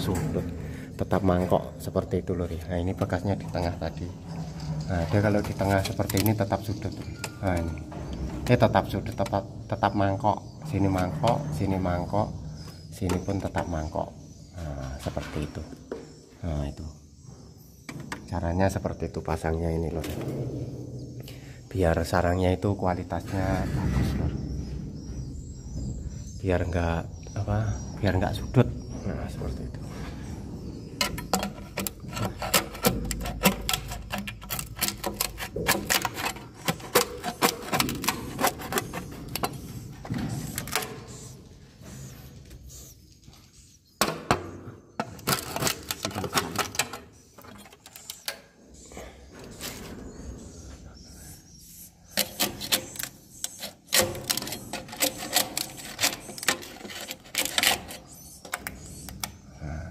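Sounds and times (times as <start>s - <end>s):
metal blade scraping nest off wood: 31.0s - 41.3s, 51.7s - 59.0s
swiftlets clicking and chirping: 31.0s - 41.4s, 45.0s - 49.8s, 50.9s - 59.5s.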